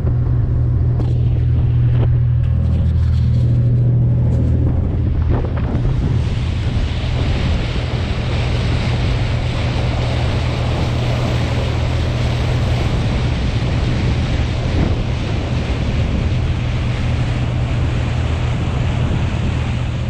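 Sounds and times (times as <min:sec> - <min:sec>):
bow wave splashing along hull: 0:00.0 - 0:20.0
diesel engine low hum: 0:00.0 - 0:20.0
wind buffeting microphone: 0:00.0 - 0:20.0.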